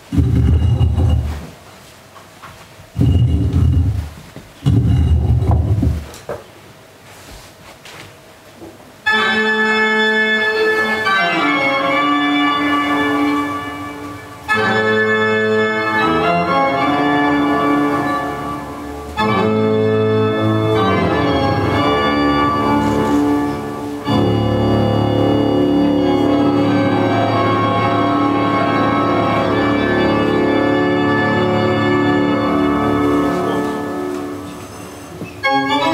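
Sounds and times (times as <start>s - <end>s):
organ music: 9.0s - 35.9s.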